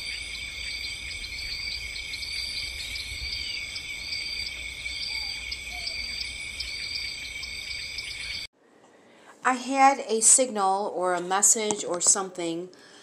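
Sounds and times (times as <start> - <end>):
short insect chirp: 0.0 - 8.5
shrill insect trills: 0.0 - 8.5.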